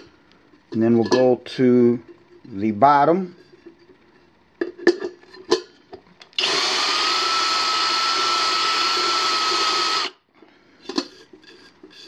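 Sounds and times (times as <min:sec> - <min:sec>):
drill press whirring: 0:06.4 - 0:10.2.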